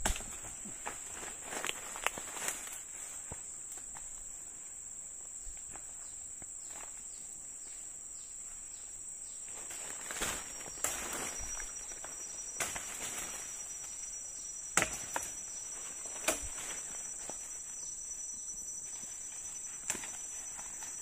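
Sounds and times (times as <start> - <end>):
high-pitched insect drone: 9.2 - 21.0.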